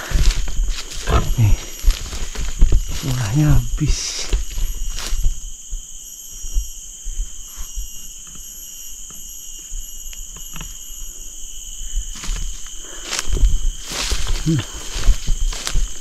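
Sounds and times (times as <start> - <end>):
rustling of ferns: 0.0 - 8.2, 11.5 - 16.0
footsteps in undergrowth: 0.0 - 8.4, 9.8 - 16.0
insect chorus: 0.0 - 16.0.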